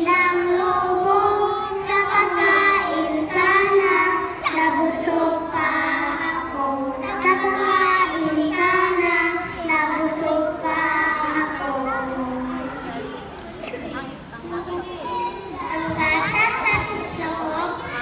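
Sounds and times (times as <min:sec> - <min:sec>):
young children singing: 0:00.0 - 0:13.8, 0:15.0 - 0:18.0.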